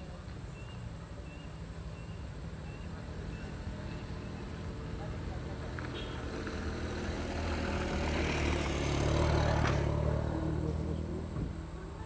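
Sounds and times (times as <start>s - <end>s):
vehicle engine passing by: 2.9s - 12.0s.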